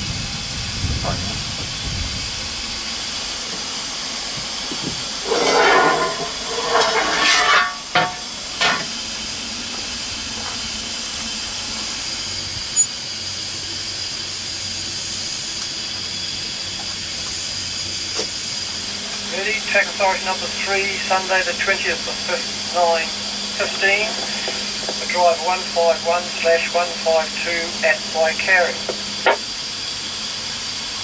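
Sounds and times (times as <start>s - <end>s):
steam hissing: 0.0s - 31.0s.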